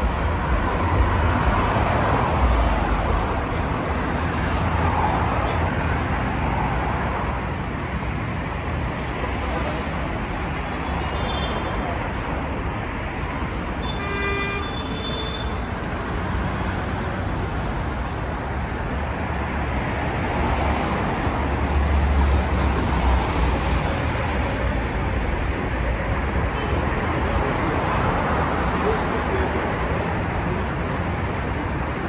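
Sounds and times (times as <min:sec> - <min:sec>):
city street traffic: 0:00.0 - 0:32.0
vehicle horn: 0:13.8 - 0:15.6.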